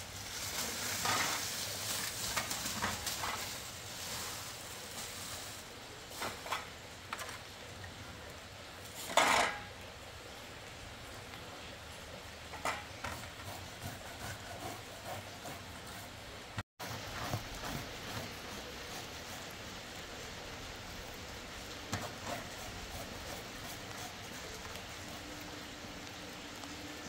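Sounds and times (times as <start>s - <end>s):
plastic bag rustling: 0.0s - 7.5s.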